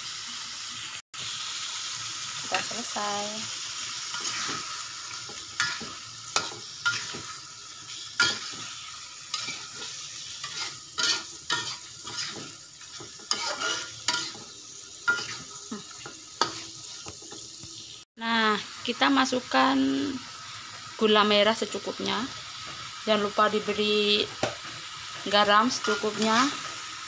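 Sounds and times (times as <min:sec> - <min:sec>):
paste sizzling: 0:00.0 - 0:27.0
metal spatula scraping a wok: 0:04.0 - 0:17.4, 0:24.6 - 0:26.9.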